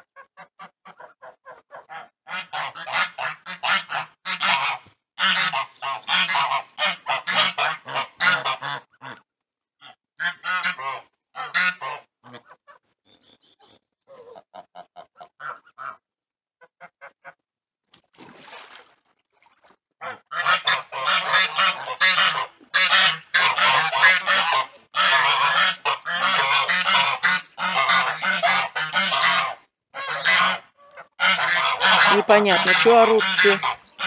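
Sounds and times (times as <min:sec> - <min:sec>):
geese honking: 0:00.6 - 0:09.2, 0:09.8 - 0:12.7, 0:20.0 - 0:34.0.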